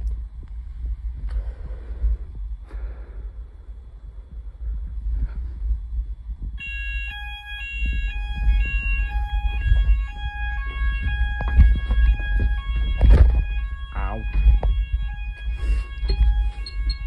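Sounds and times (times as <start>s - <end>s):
fire alarm tone: 6.6s - 17.0s
phone handling rumble: 9.6s - 17.0s.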